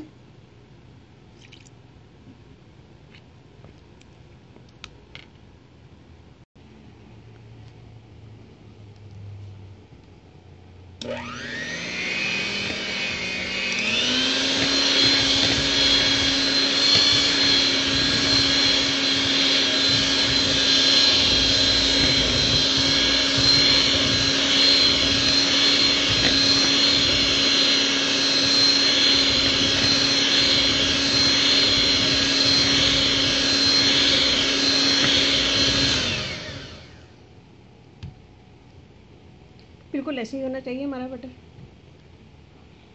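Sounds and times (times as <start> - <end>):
electric hand mixer whipping batter: 11.0 - 37.1.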